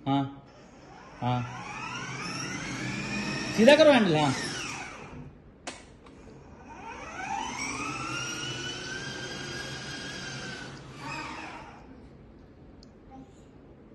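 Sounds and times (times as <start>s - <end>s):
electric toy motor whining: 0.6s - 5.3s, 6.6s - 11.8s.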